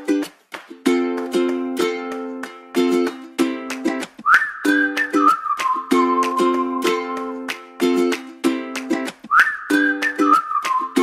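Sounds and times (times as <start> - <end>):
plucked string chords: 0.0 - 11.0
whistled tune: 4.2 - 7.6, 9.3 - 11.0.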